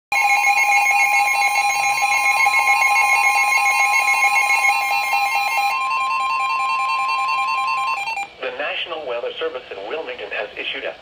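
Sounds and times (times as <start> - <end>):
pulsing alarm beeps: 0.1 - 8.3
steady warning tone: 0.1 - 8.3.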